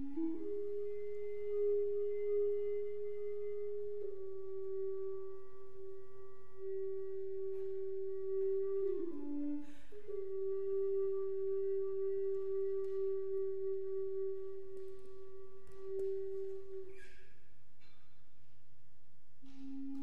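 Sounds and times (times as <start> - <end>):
recorder playing: 0.0 - 17.0
short breath: 9.6 - 10.0.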